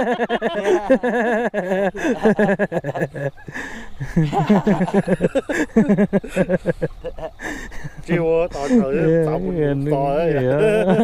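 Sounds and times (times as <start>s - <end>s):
men talking: 0.0s - 3.2s, 7.5s - 11.0s.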